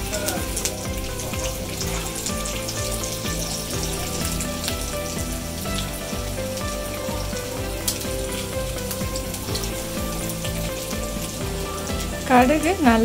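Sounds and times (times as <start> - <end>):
quiet background music: 0.0 - 13.0
seeds sizzling in hot oil: 0.0 - 13.0.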